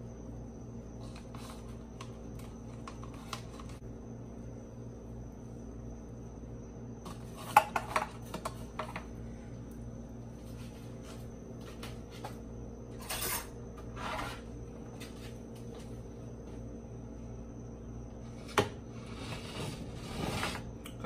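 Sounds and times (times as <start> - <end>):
scraping on glass dish: 13.0 - 14.5, 18.3 - 20.7.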